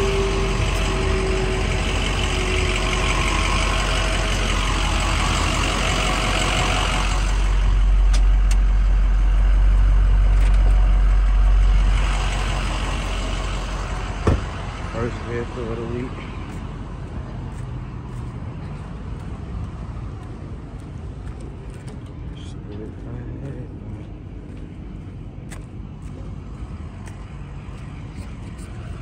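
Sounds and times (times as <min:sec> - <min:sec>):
truck engine idling: 0:00.0 - 0:29.0.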